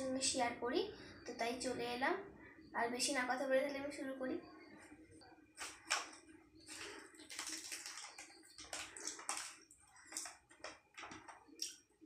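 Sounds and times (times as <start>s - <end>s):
plastic chip packet crinkling: 5.6s - 11.8s.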